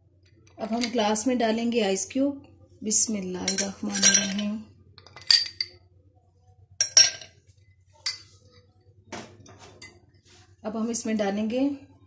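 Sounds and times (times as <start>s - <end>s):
ice cubes clinking in a glass: 3.5s - 4.5s.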